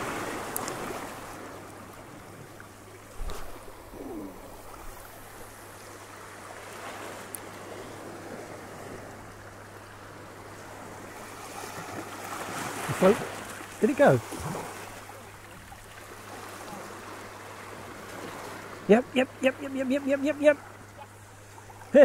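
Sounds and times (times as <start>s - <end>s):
small waves washing over rocks: 10.1s - 19.5s.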